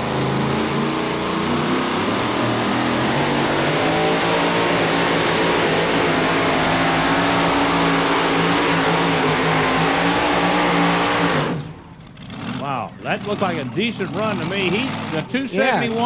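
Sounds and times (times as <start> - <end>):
truck engine at high revs: 0.0 - 16.0.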